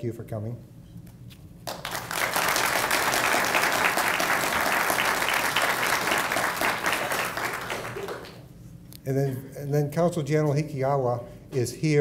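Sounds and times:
audience applauding: 1.7s - 8.5s.

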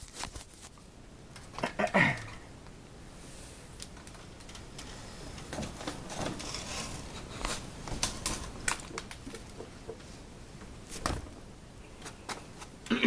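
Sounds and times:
soft rustling: 0.0s - 0.9s.

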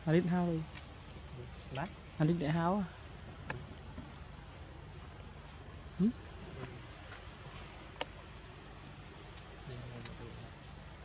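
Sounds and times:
forest insects droning: 0.0s - 11.0s
sharp clicks: 9.3s - 10.2s.

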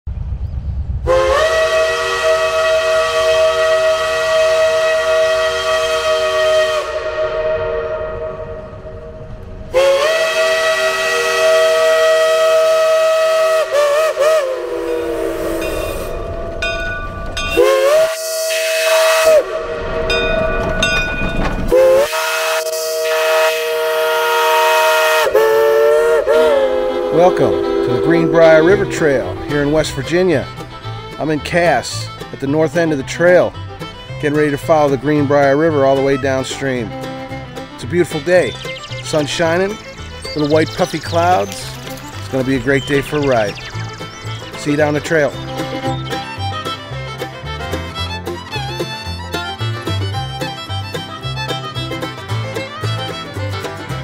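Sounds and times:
chime steam whistle blasts: 1.1s - 30.1s
steam hissing: 9.7s - 16.9s, 17.5s - 20.3s.

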